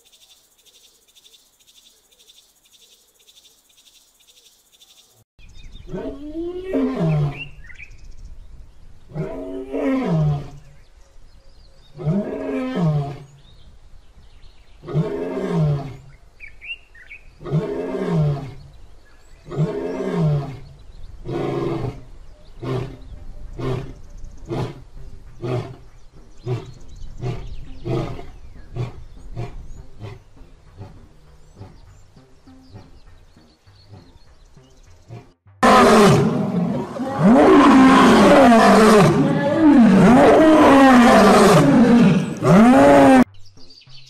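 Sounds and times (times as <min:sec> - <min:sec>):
bird chirping: 0:00.0 - 0:09.1, 0:10.4 - 0:12.2, 0:16.0 - 0:17.6, 0:18.3 - 0:44.0
lion grunting: 0:35.1 - 0:43.2
lion roaring: 0:35.1 - 0:43.3.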